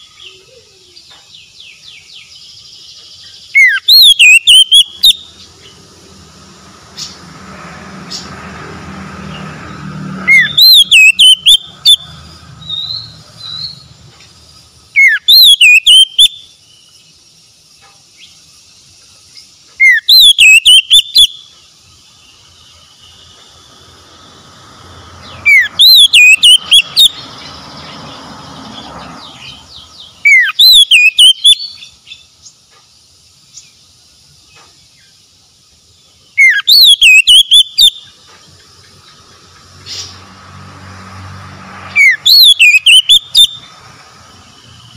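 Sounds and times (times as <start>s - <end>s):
bird singing whistled phrase: 3.5s - 5.3s, 10.3s - 12.0s, 15.0s - 16.4s, 19.8s - 21.4s, 25.5s - 27.1s, 30.3s - 31.9s, 36.4s - 38.1s, 42.0s - 43.7s.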